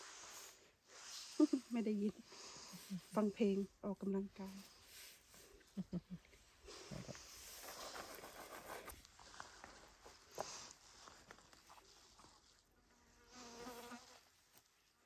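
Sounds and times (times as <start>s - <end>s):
flying insect buzzing: 13.2s - 14.2s.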